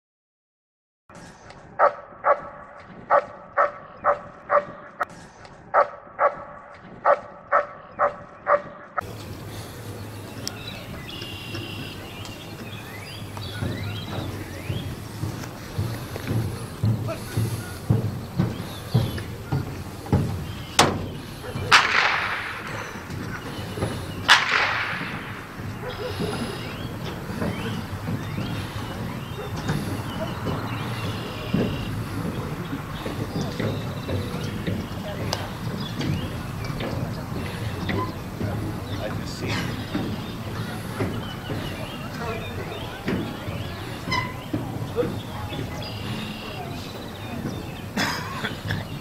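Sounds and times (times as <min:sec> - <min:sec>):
dog barking: 0:01.8 - 0:05.0, 0:05.7 - 0:09.0, 0:25.8 - 0:26.6
blank pistol shots with echo: 0:21.7 - 0:22.8.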